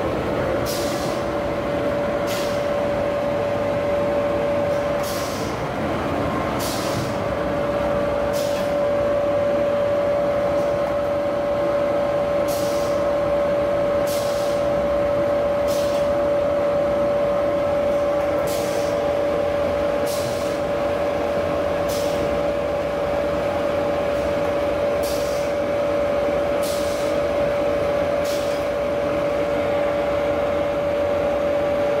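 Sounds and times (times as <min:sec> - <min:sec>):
machine hum and whine: 0:00.0 - 0:32.0.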